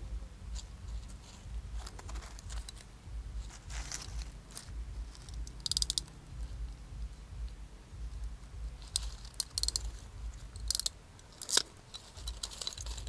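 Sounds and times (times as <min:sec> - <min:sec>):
dry leaves rustling: 0:00.0 - 0:13.0
wire handling: 0:00.5 - 0:06.2, 0:07.5 - 0:13.0
crimping tool clicks: 0:05.2 - 0:06.2, 0:08.9 - 0:09.9, 0:10.6 - 0:13.0.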